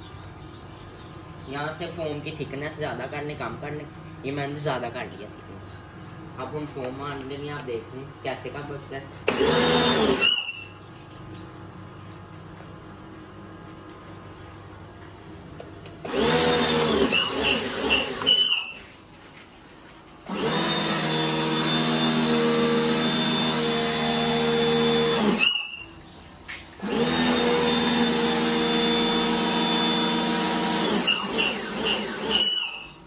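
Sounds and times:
pressure washer motor whine: 9.2s - 10.9s, 15.8s - 19.0s, 20.2s - 26.0s, 26.7s - 33.0s.

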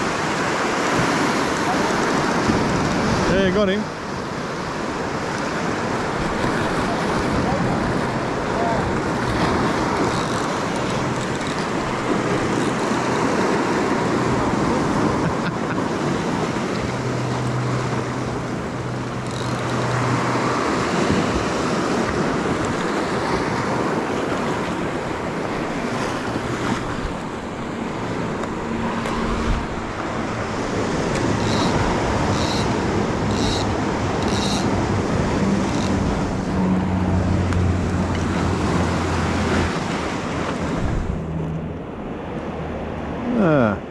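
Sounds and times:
wind on the microphone: 39.4s - 41.3s.

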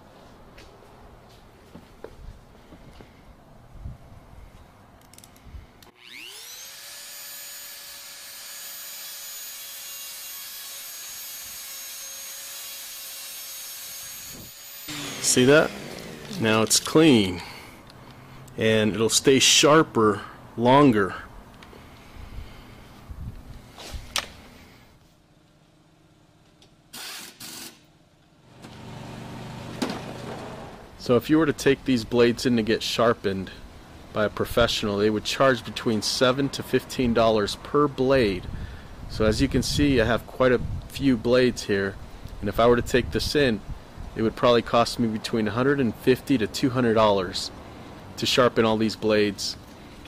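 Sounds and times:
low mechanical hum: 0.0s - 19.2s, 20.2s - 27.0s, 27.8s - 31.1s
impact wrench bursts: 5.9s - 17.8s, 26.9s - 27.9s
rotary tool sanding metal: 6.0s - 17.0s.

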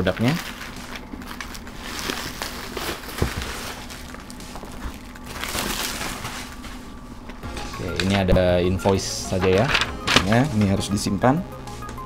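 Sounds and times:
plastic wrap rustling: 0.0s - 8.2s.

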